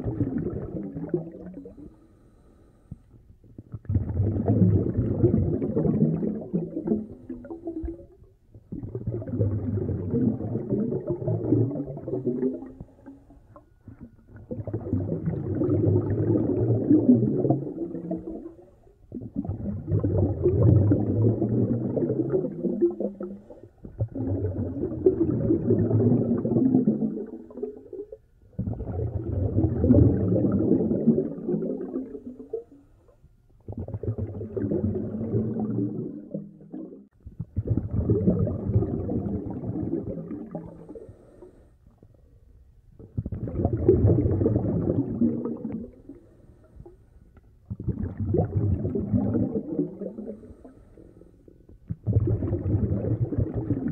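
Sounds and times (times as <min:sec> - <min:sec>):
bubbling exhalations: 0:00.0 - 0:02.0, 0:03.4 - 0:32.7, 0:33.6 - 0:41.5, 0:43.0 - 0:47.0, 0:47.6 - 0:53.9
diver breathing through regulator: 0:01.7 - 0:03.1, 0:40.7 - 0:41.8, 0:50.1 - 0:51.5.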